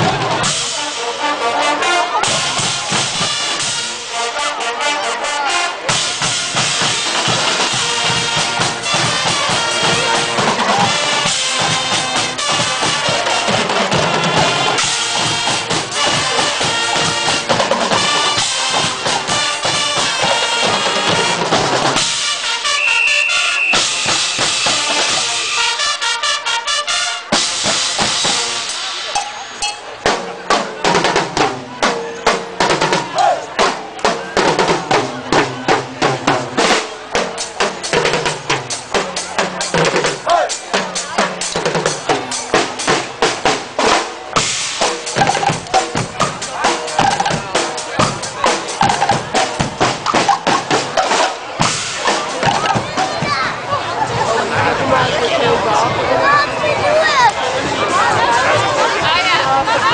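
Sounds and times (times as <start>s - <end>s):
snare drums: 0.0s - 4.7s, 5.3s - 54.8s
cymbals: 0.0s - 30.7s, 36.2s - 53.3s
brass horns: 0.0s - 53.3s
bass drum: 44.4s - 53.4s.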